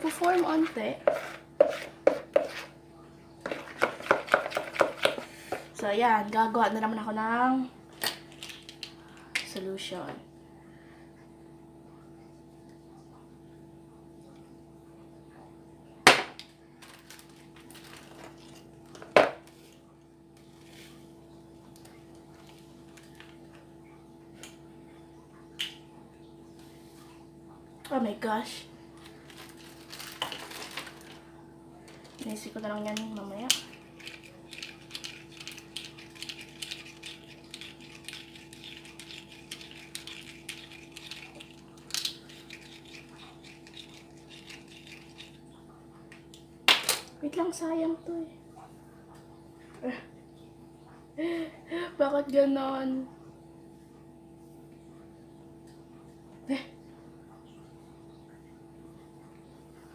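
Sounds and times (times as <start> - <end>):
spoon stirring in a plastic cup: 0.0 - 2.8, 3.4 - 5.8, 32.2 - 45.4
plastic packet rustling: 16.8 - 18.7, 29.0 - 31.2.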